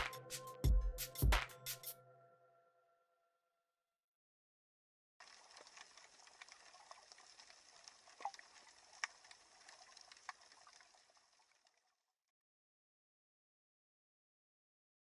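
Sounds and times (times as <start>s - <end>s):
sharp underwater clicks and crackles: 5.2s - 12.0s.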